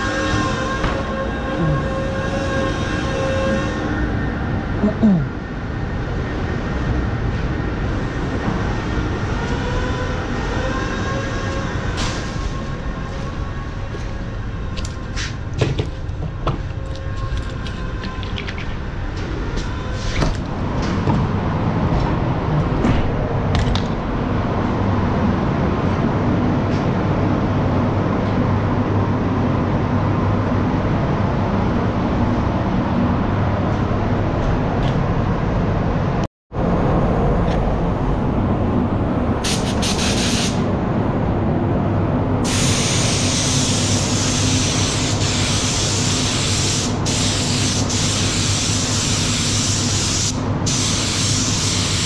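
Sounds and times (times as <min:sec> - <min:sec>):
air machinery humming: 0:00.0 - 0:52.0
spray gun hissing: 0:39.5 - 0:40.6, 0:42.5 - 0:52.0.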